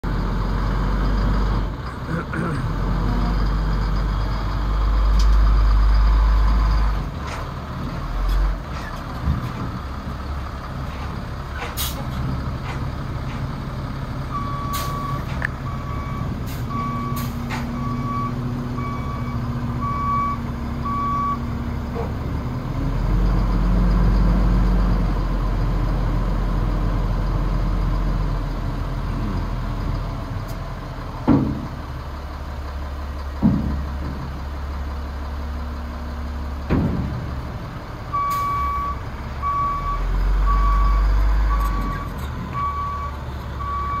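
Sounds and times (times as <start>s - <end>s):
truck diesel engine running: 0.0s - 44.0s
reverse alarm beeping: 17.8s - 21.4s.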